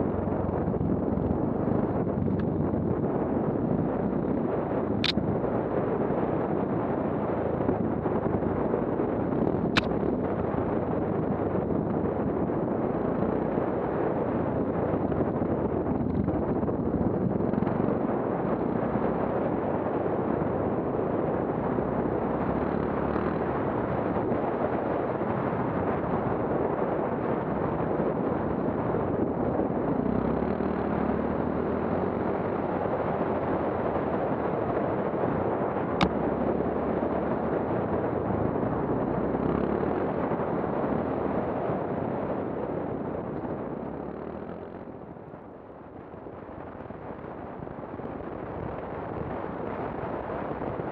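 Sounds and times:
sharp click: 0:05.0 - 0:05.2, 0:09.7 - 0:10.0.

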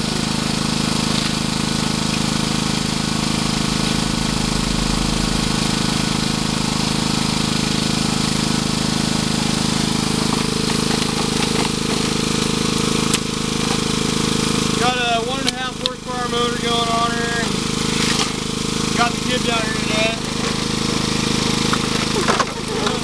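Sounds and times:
pump motor running: 0:00.0 - 0:23.0.

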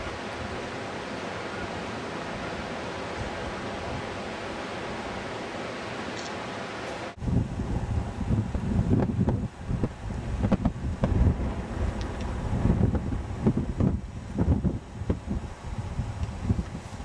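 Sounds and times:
rushing outdoor air: 0:00.0 - 0:17.0
gusty wind buffeting microphone: 0:07.1 - 0:17.0.

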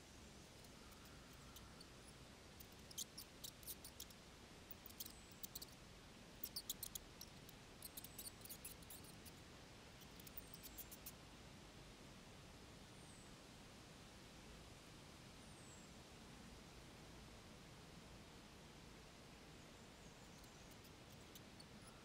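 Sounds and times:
mice squeaking: 0:00.7 - 0:05.8, 0:06.4 - 0:09.3.

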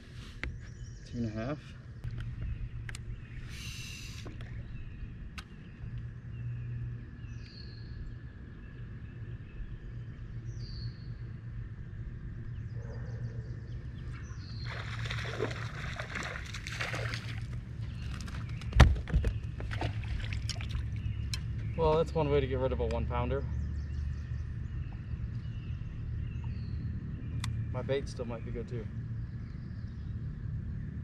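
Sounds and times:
fish splashing in water: 0:14.6 - 0:18.5, 0:19.6 - 0:21.2.

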